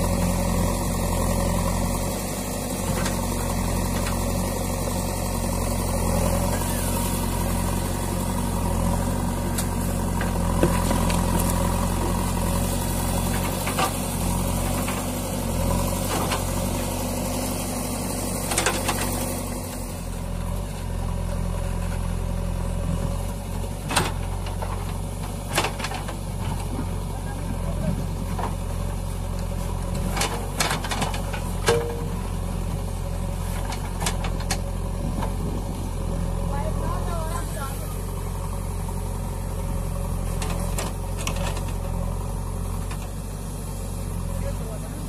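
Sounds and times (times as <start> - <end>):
diesel engine under load: 0.0 - 45.0.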